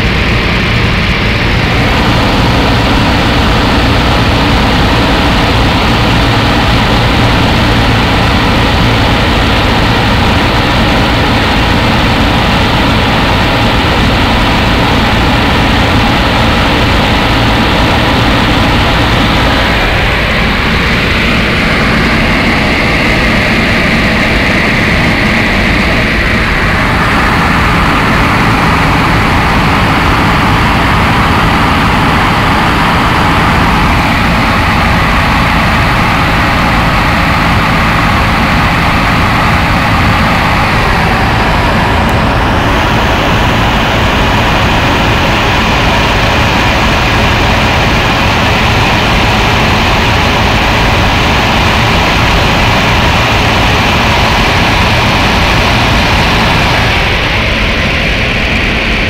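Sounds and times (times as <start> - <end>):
airplane engine and propeller hum: 0.0 - 59.0
loud wind rush: 0.0 - 59.0.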